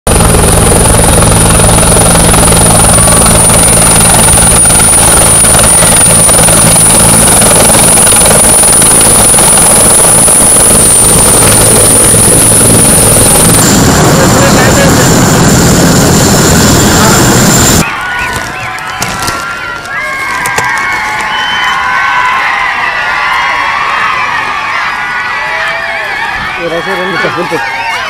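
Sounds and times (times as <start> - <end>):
helicopter turbine whine: 0.1 - 20.0, 24.0 - 28.0
helicopter rotor beat: 0.1 - 21.5.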